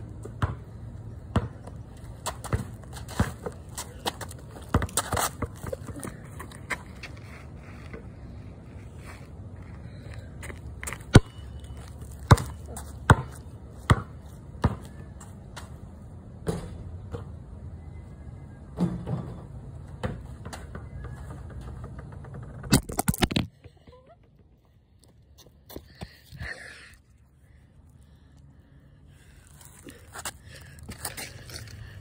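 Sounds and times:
basketball bouncing on concrete: 0.2s - 6.8s, 10.8s - 15.0s, 16.4s - 17.3s, 20.0s - 23.8s.

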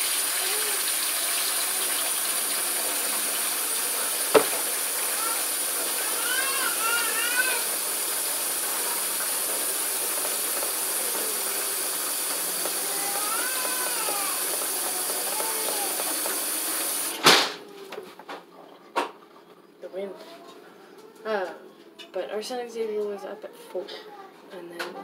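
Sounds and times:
steady rushing hiss: 0.0s - 17.2s
loud knock: 4.3s - 4.7s.

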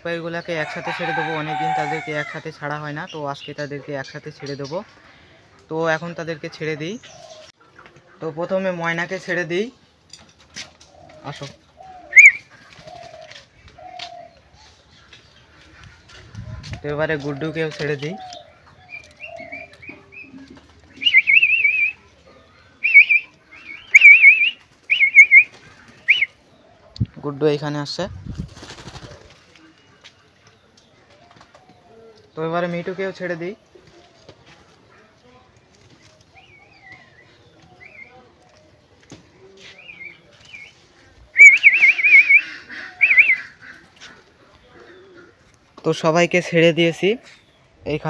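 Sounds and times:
loud warbling whistles: 12.1s - 12.5s, 21.0s - 22.0s, 22.8s - 25.5s, 41.3s - 43.5s.

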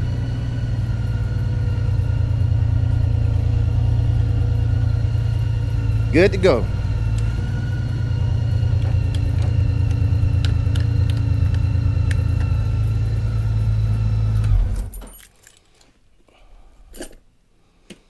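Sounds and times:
motorcycle engine idling: 0.0s - 14.4s.

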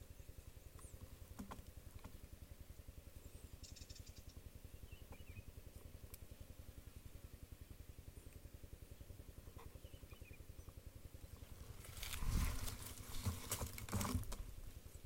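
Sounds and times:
faint bird chirps: 3.1s - 5.6s, 8.0s - 11.6s
small ticks: 5.1s - 6.4s, 8.2s - 8.5s.

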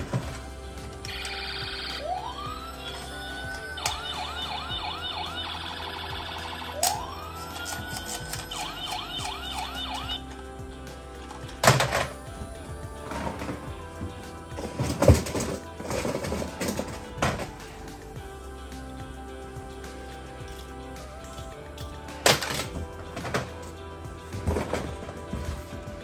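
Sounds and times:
toy electronic siren: 1.0s - 10.2s.

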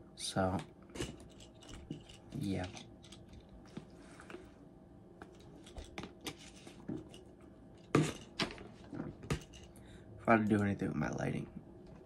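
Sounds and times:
small objects clicking and rustling: 1.0s - 3.9s.

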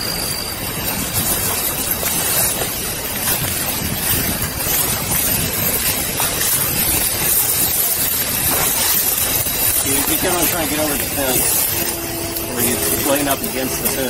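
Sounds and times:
leaves and branches rustling: 0.0s - 14.0s.

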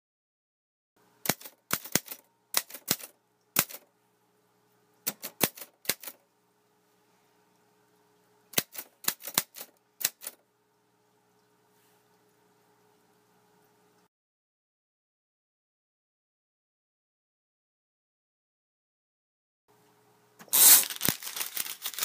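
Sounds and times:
faint steady hum: 1.0s - 14.1s, 19.7s - 22.0s
sharp clicks: 1.2s - 3.9s, 5.0s - 6.2s, 8.5s - 10.4s.

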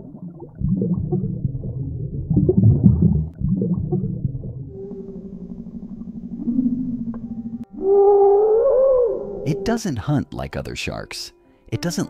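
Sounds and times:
deep underwater low rumble: 0.0s - 9.5s.

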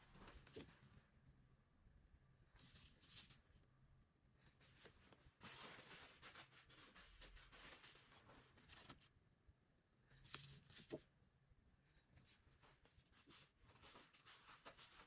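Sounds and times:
plastic sheet rustling: 4.7s - 9.0s.

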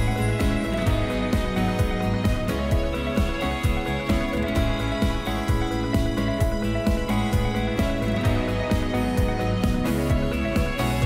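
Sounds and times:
music with sustained tones: 0.0s - 11.0s
steady drum beat: 0.0s - 11.0s.

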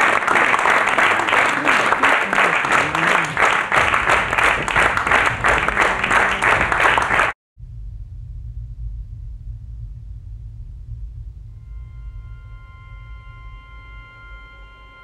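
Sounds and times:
audience applauding: 0.0s - 7.4s
low rumbling drone: 0.0s - 15.0s.

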